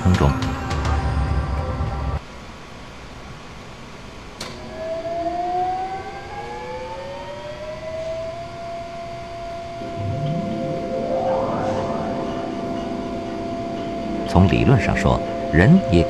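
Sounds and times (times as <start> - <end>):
electromagnet whine rising: 4.6 - 16.0.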